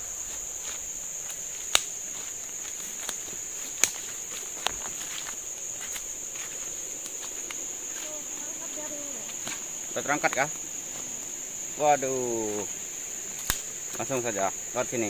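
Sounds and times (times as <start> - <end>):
forest insects chirring: 0.0 - 15.0
sharp snaps: 1.3 - 2.0, 2.8 - 4.8, 13.3 - 14.2.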